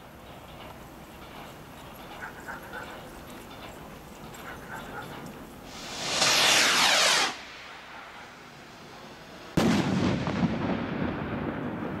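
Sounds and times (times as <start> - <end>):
rolling echo with crackles: 0.0 - 12.0
loud firework bang: 5.7 - 8.0, 9.5 - 12.0
firework rocket whooshing: 5.7 - 10.7.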